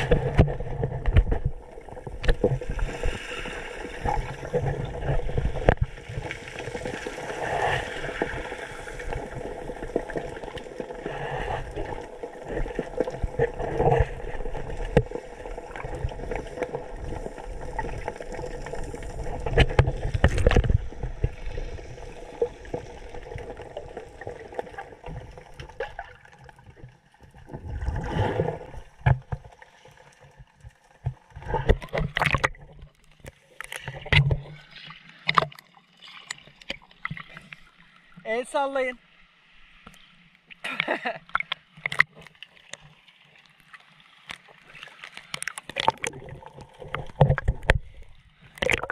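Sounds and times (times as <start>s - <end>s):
underwater water wash: 0.0s - 48.9s
gurgling splashes: 31.3s - 37.8s, 44.5s - 48.9s.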